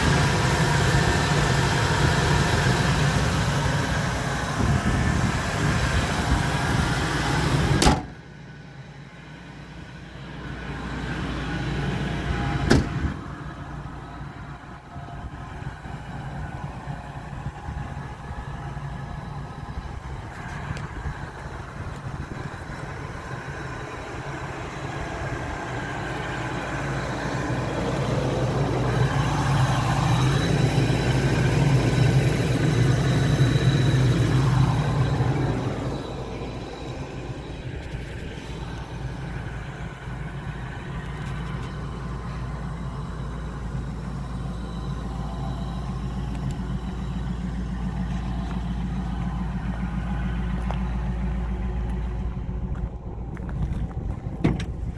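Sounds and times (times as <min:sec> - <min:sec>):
truck engine idling: 0:00.0 - 0:54.9
hood slamming shut: 0:07.6 - 0:08.2, 0:12.6 - 0:13.2, 0:54.2 - 0:54.9.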